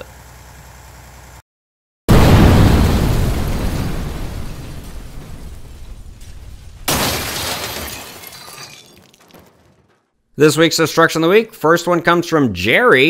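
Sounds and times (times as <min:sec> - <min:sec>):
explosion booms: 0:02.1 - 0:07.7.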